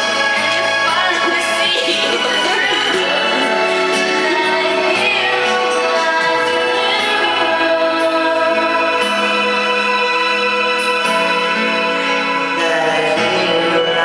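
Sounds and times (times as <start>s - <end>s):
keyboard chords backing track: 0.0s - 14.0s
person singing into microphone: 0.0s - 14.0s.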